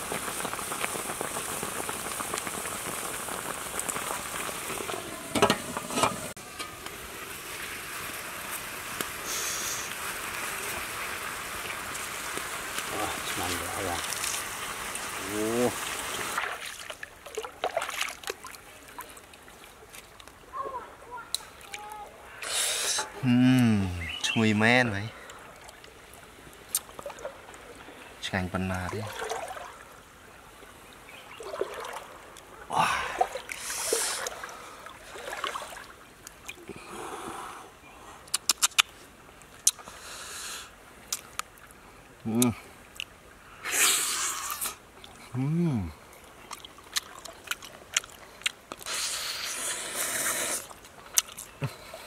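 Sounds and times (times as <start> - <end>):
steady watery hiss: 0.0 - 17.1, 18.4 - 52.0
stream water trickling: 0.0 - 52.0
small splashes and drips: 11.6 - 20.7, 21.3 - 22.1, 25.2 - 28.0, 28.7 - 36.8, 46.2 - 49.1, 50.5 - 52.0.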